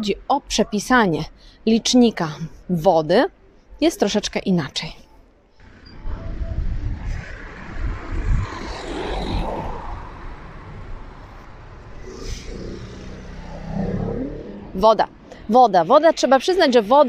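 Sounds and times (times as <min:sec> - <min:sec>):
wind buffeting microphone: 0:05.6 - 0:13.4
car passing by: 0:05.6 - 0:14.8.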